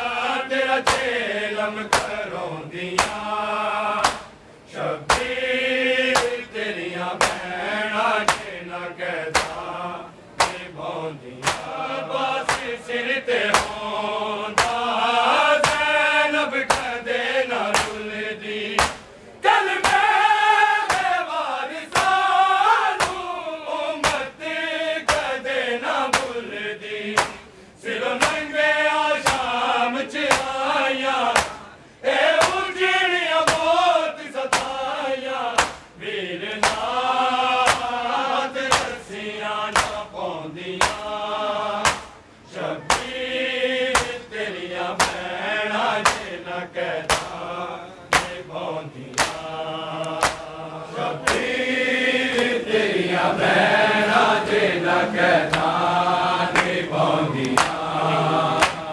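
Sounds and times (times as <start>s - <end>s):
lead voice chanting: 0.0s - 58.9s
men chanting in unison: 0.0s - 58.9s
chest-beating slaps: 0.8s - 1.2s, 1.9s - 2.2s, 3.0s - 3.3s, 4.0s - 4.4s, 5.1s - 5.4s, 6.1s - 6.5s, 7.2s - 7.5s, 8.3s - 8.6s, 9.3s - 9.6s, 10.4s - 10.7s, 11.4s - 11.8s, 12.4s - 12.8s, 13.5s - 13.8s, 14.6s - 14.9s, 15.6s - 15.9s, 16.7s - 17.0s, 17.6s - 18.1s, 18.8s - 19.2s, 19.8s - 20.1s, 20.8s - 21.2s, 21.9s - 22.2s, 23.0s - 23.2s, 24.0s - 24.3s, 25.0s - 25.4s, 26.1s - 26.4s, 27.2s - 27.5s, 28.2s - 28.5s, 29.2s - 29.5s, 30.3s - 30.6s, 31.3s - 31.7s, 32.4s - 32.6s, 33.4s - 33.7s, 34.5s - 34.8s, 35.6s - 36.9s, 37.6s - 38.0s, 38.7s - 39.0s, 39.7s - 40.1s, 40.8s - 41.2s, 41.8s - 42.2s, 42.8s - 43.2s, 43.9s - 44.3s, 45.0s - 45.2s, 46.0s - 46.4s, 47.0s - 47.4s, 48.1s - 48.4s, 49.1s - 50.5s, 51.2s - 51.6s, 52.3s - 52.6s, 55.5s - 55.8s, 56.5s - 56.8s, 57.4s - 57.8s, 58.6s - 58.9s.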